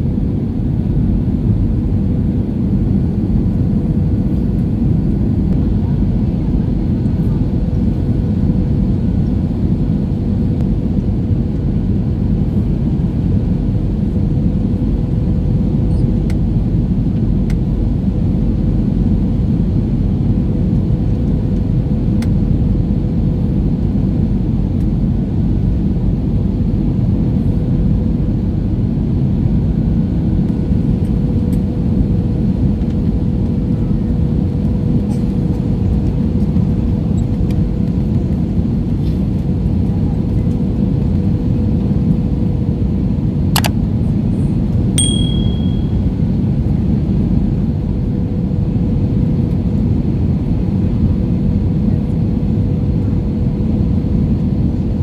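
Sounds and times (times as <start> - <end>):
thin steady hum: 45.0 - 46.6.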